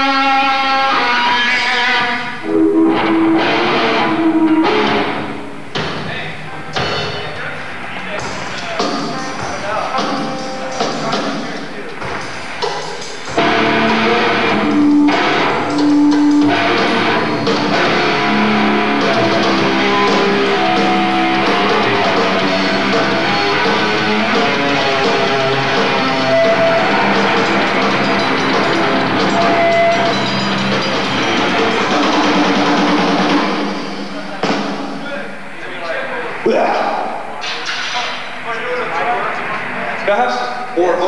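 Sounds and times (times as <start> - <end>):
distorted electric guitars: 0.0 - 35.1
drum kit: 2.4 - 35.1.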